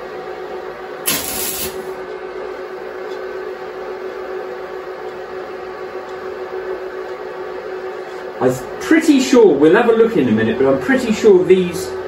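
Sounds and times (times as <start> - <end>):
steady hum: 0.0 - 12.0
welding arc hissing and crackling: 1.0 - 2.0.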